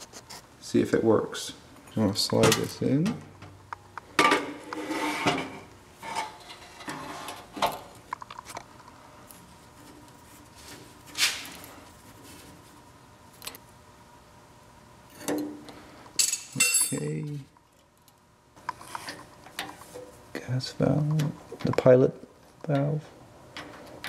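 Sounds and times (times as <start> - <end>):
metal clanks and scrapes: 4.2 - 7.9.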